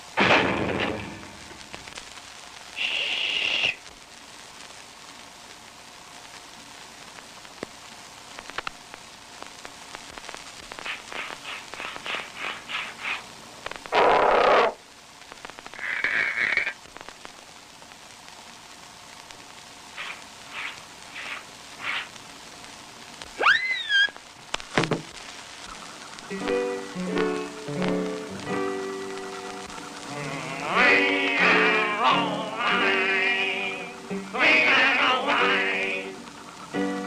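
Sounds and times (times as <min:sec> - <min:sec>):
film soundtrack hiss and crackle: 0:00.0 - 0:37.0
loud crash: 0:00.2 - 0:01.6
short high squeal: 0:23.4 - 0:24.2.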